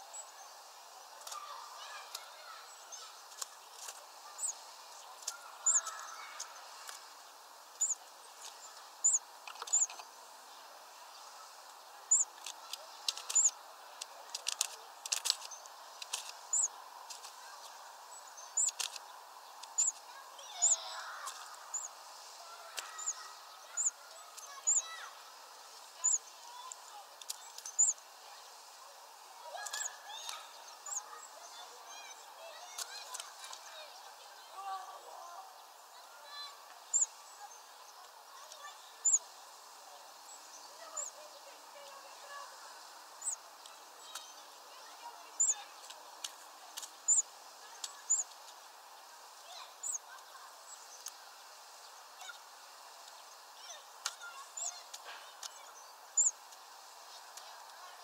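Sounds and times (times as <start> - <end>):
songbirds chirping: 0.0 - 58.0
sharp clicks: 11.7 - 17.4, 18.6 - 20.0.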